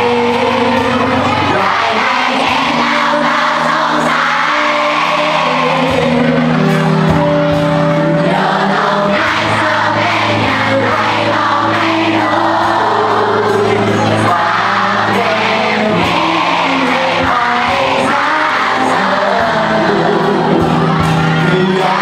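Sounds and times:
bass guitar: 0.0 - 22.0
drums: 0.0 - 22.0
electric guitar: 0.0 - 22.0
person singing into a microphone: 0.0 - 22.0.

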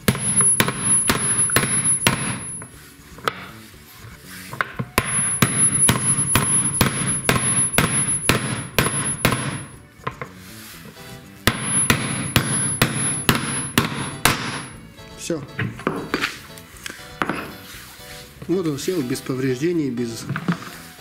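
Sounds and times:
hammer knocking on steel drift: 11.5 - 14.7.

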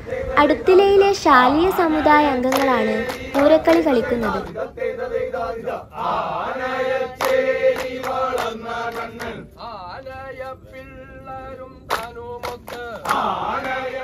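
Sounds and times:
sharp hand claps: 2.4 - 4.6, 7.2 - 9.4, 11.9 - 13.8
men singing in chorus: 2.6 - 14.0.

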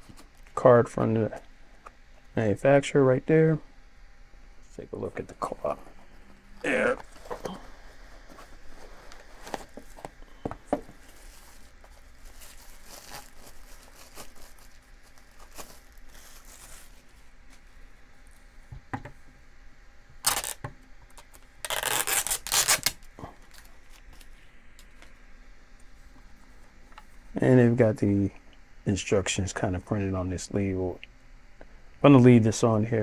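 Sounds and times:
protective wrap tearing: 11.2 - 17.0, 20.2 - 20.6, 21.6 - 24.2.

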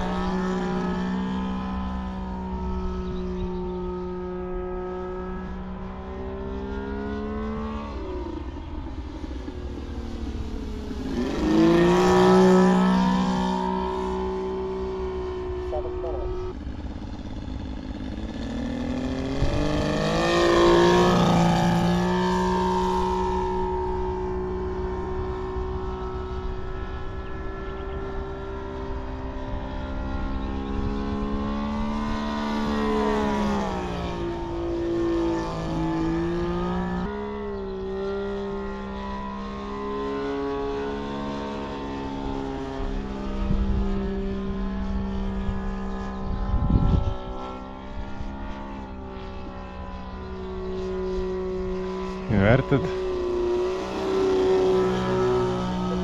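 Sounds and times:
model plane engine flying overhead: 0.0 - 56.0
wind rumbling on microphone: 19.1 - 20.8, 43.4 - 48.2.

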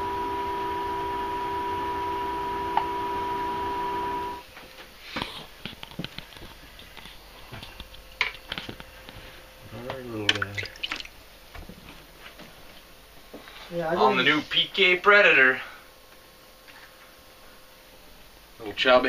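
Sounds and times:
machine hum with two tones: 0.0 - 4.6.

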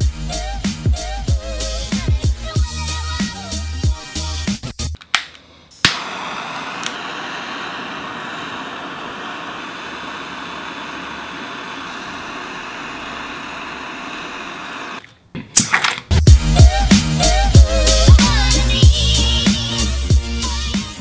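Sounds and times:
torch lighter click: 5.2 - 15.1
torch flame hissing: 5.8 - 15.1.

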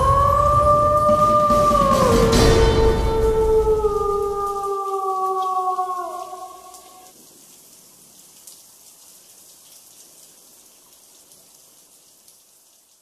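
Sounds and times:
wolf howl: 0.0 - 7.0
steady rain hiss: 0.0 - 13.0.

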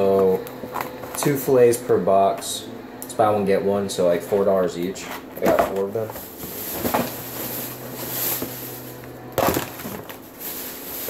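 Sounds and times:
cardboard boxes knocking and rustling: 5.4 - 7.5, 9.4 - 10.7.

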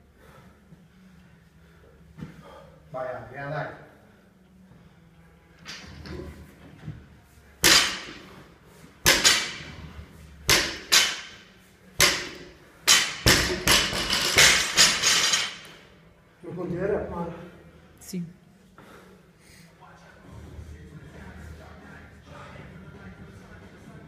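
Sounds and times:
barbell dropping on rubber platform: 7.6 - 8.2, 9.0 - 9.7, 10.5 - 11.4, 12.0 - 15.6.

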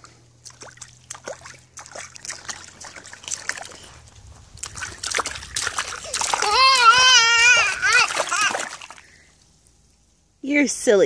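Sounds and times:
water splashing in a tray: 0.0 - 3.8, 4.6 - 9.3.

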